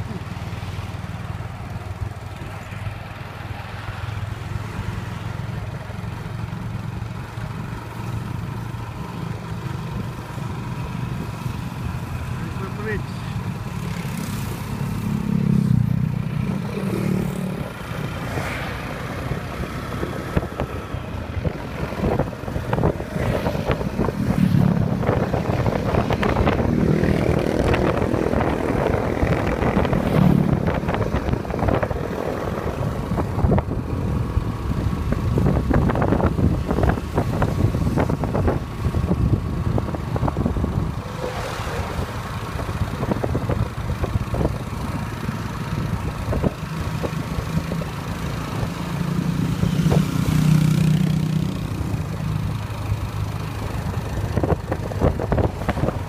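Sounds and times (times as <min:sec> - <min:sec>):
motorcycle engine running: 0:00.0 - 0:56.0
wind buffeting: 0:17.5 - 0:45.2, 0:53.6 - 0:56.0.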